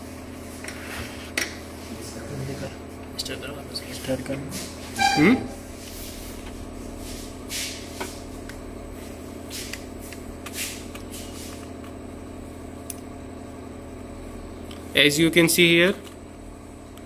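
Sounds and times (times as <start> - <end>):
steady electrical hum: 0.0 - 17.0.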